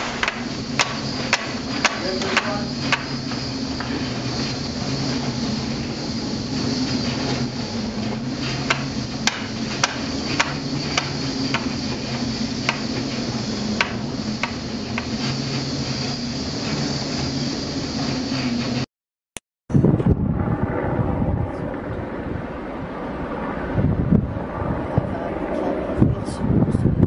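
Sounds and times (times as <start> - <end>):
sharp knocks and clicks: 0.0 - 3.1, 8.6 - 11.8, 13.8 - 15.1
ship engine drone: 0.0 - 18.9.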